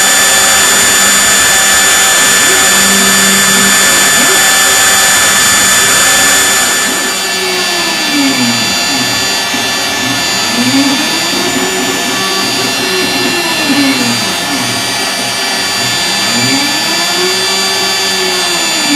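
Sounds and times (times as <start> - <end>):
lower whine rising and falling: 0.0 - 18.9
milling cutting noise: 0.0 - 18.9
router spindle whine: 0.0 - 18.9.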